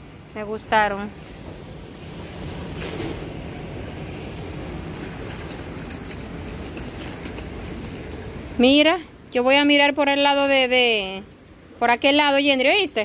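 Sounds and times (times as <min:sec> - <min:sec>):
small wheels rolling on tiles: 0:02.0 - 0:08.9.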